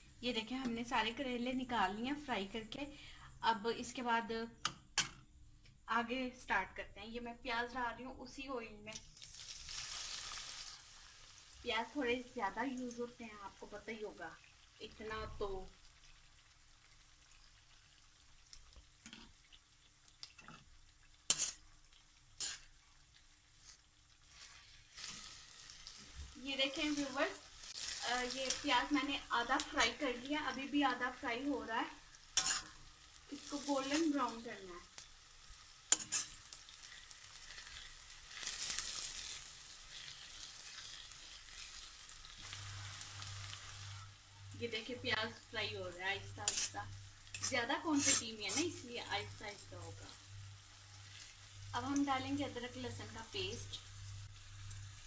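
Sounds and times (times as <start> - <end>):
faint sizzle: 0.0 - 55.0
spatula scraping in a pan: 18.6 - 44.2, 46.2 - 52.0.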